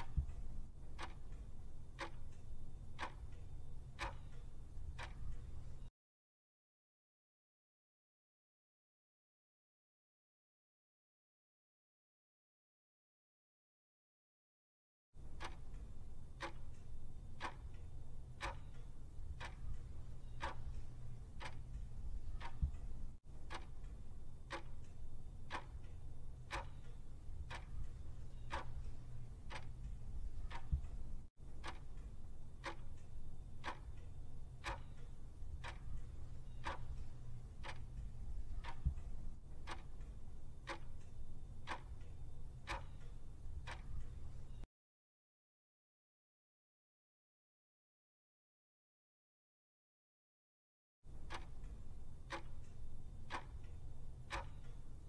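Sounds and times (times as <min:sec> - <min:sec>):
clock ticking: 0:00.0 - 0:05.9, 0:15.2 - 0:44.7, 0:51.1 - 0:55.0
low steady hum: 0:00.0 - 0:05.9, 0:15.2 - 0:44.6, 0:51.1 - 0:55.0.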